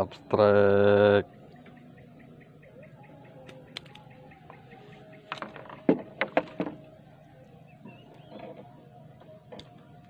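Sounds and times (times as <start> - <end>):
knocks and taps on wooden boat: 5.2 - 6.9.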